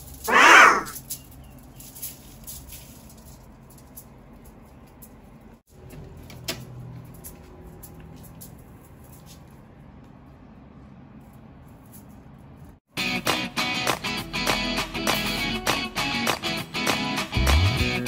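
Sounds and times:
cat meowing: 0.3 - 1.0
aluminium foil crinkling: 0.9 - 5.3.

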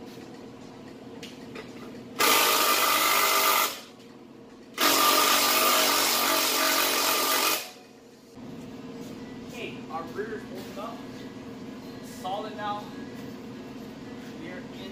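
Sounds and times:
handheld power tool running: 2.2 - 3.8, 4.8 - 7.8.

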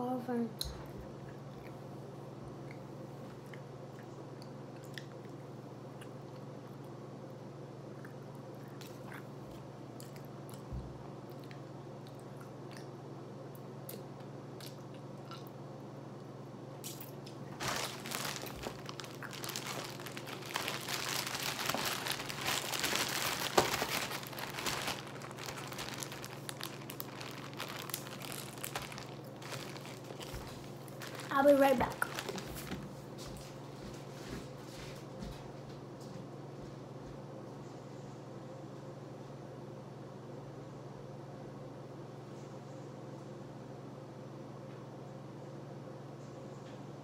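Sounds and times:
faint chewing: 0.6 - 7.0, 7.9 - 15.6, 16.8 - 32.8
plastic bag crinkling: 17.5 - 32.8.

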